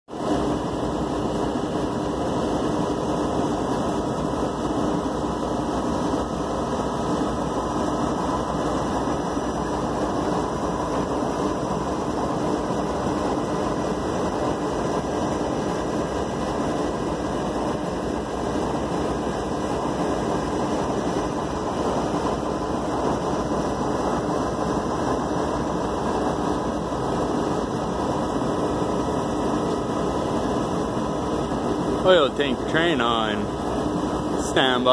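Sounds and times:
diesel locomotives idling: 0.1 - 34.9
faint hum: 0.2 - 34.9.

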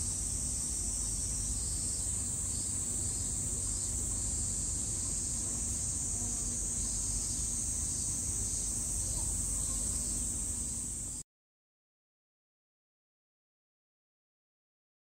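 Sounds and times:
cicadas singing: 0.0 - 11.2.

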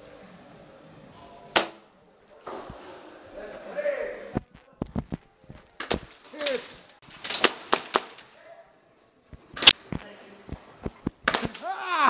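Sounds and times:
airsoft gunfire pops: 1.6 - 1.8, 10.8 - 11.6.

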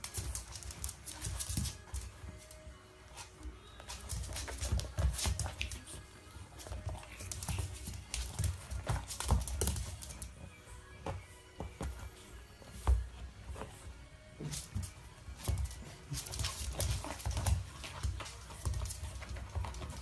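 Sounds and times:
shoe and paws knocking on wooden floor: 3.8 - 5.8, 6.6 - 10.4.

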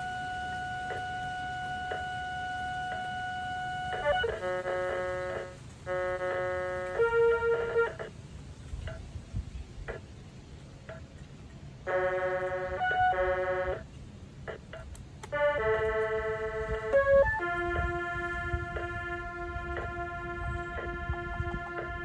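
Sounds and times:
glitched electronic keyboard tones: 0.0 - 8.2, 8.8 - 9.1, 11.9 - 22.0
scattered clicks: 0.4 - 8.1, 11.9 - 17.8.

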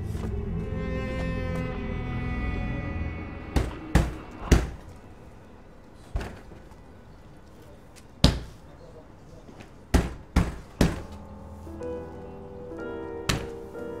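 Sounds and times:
dull thuds: 6.1 - 6.7, 9.9 - 11.3, 13.3 - 13.7.

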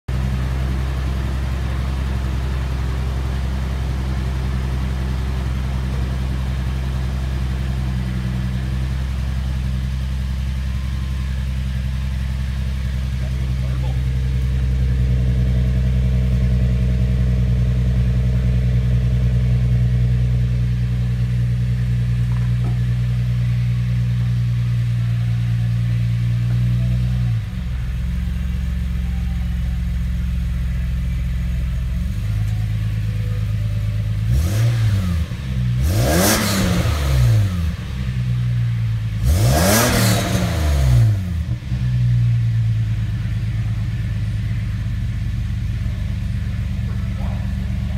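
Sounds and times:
engine exhaust idling: 0.1 - 47.9
engine revving: 34.0 - 42.4.

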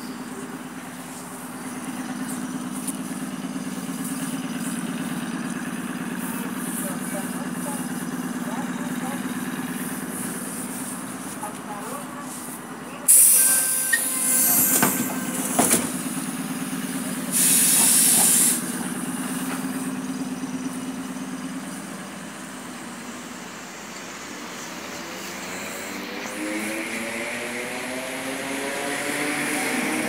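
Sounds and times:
traction motors whining: 13.1 - 26.3
compressed air hissing: 17.2 - 18.8.

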